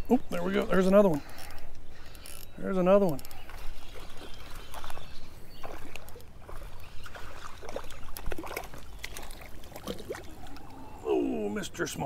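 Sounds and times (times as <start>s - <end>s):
fish splashing at water surface: 3.5s - 10.8s.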